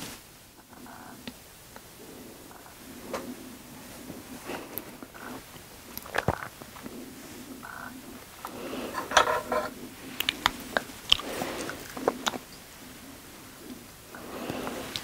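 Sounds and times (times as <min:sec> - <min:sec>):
close chewing sounds: 0:04.1 - 0:15.0.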